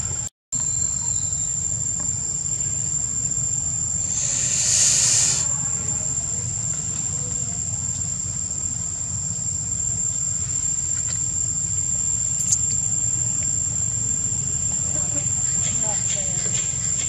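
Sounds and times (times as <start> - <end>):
insects droning: 0.6 - 17.0
short rush of hiss: 4.1 - 5.5.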